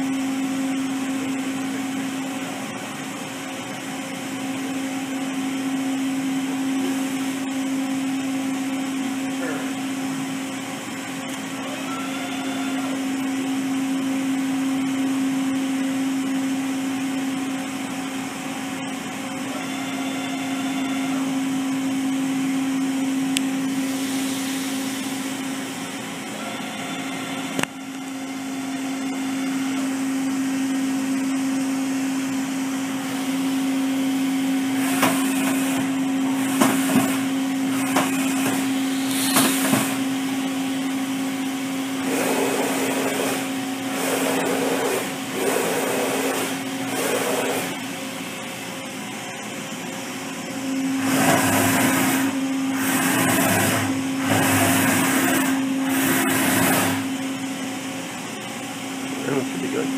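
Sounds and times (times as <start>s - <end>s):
machine steady hum: 0.0s - 59.9s
brief machine whines: 11.5s - 13.4s, 19.4s - 21.8s, 23.5s - 25.6s, 26.2s - 30.4s, 34.8s - 41.0s.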